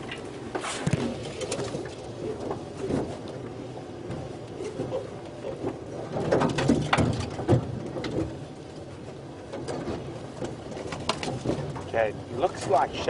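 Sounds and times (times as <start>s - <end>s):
sharp clicks and knocks: 5.6s - 8.4s, 9.5s - 12.8s.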